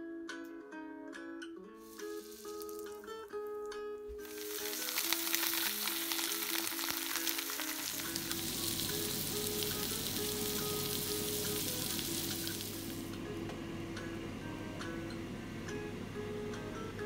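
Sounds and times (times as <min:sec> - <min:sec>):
fish frying in a pan: 0:01.8 - 0:13.2
music playing: 0:01.8 - 0:13.4.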